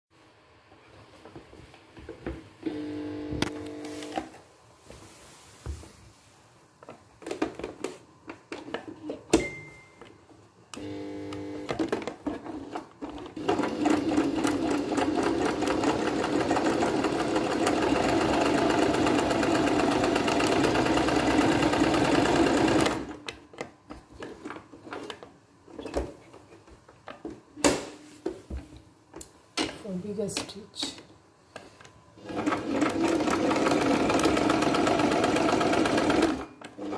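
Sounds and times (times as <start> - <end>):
sewing machine stitching: 10.8 - 23.2, 32.2 - 36.9.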